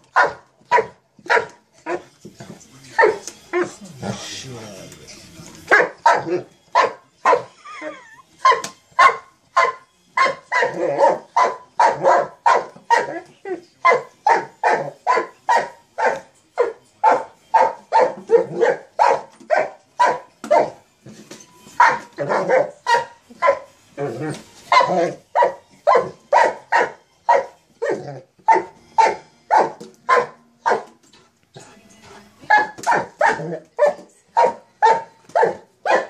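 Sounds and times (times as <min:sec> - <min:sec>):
dog barking: 0:00.1 - 0:02.0, 0:03.0 - 0:03.7, 0:05.7 - 0:07.5, 0:08.4 - 0:13.2, 0:13.8 - 0:20.8, 0:21.8 - 0:23.7, 0:24.7 - 0:30.9, 0:32.5 - 0:36.0.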